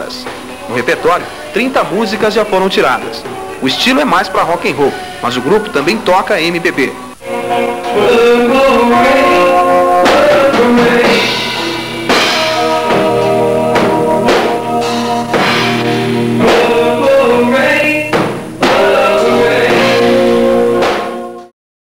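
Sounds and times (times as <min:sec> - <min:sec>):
man singing: 0:00.0 - 0:13.4, 0:16.4 - 0:20.4
rock band playing: 0:07.0 - 0:21.5.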